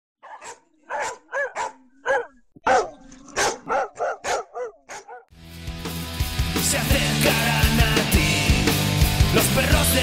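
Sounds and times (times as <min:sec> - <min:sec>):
dog barking: 0:00.2 - 0:05.3.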